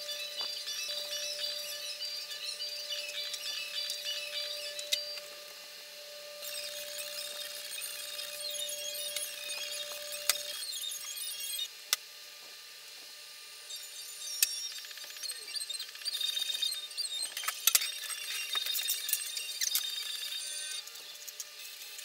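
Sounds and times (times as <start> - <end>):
fast high-pitched chatter: 0.0 - 5.4.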